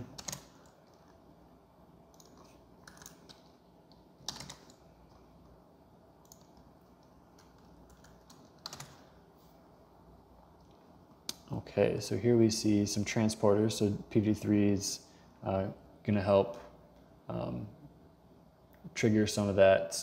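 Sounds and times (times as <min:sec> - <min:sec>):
computer keyboard keystrokes: 0:00.0 - 0:01.1, 0:02.1 - 0:05.2, 0:06.2 - 0:09.0.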